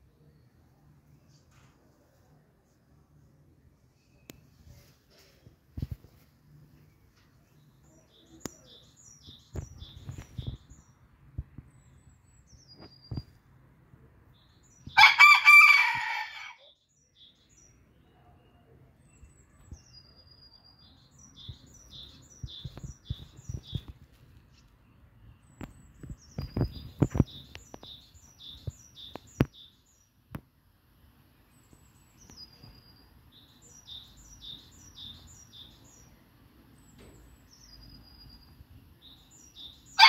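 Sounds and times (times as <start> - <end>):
small birds chirping: 3.4 - 15.3, 16.6 - 40.0
rooster crowing: 15.0 - 16.7.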